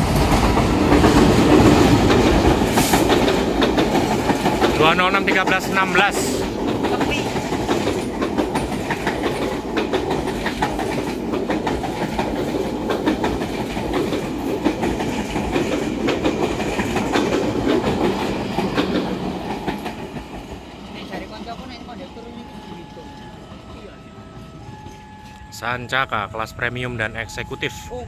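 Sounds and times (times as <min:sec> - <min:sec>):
train wheels clattering on rail joints: 0:00.0 - 0:21.0.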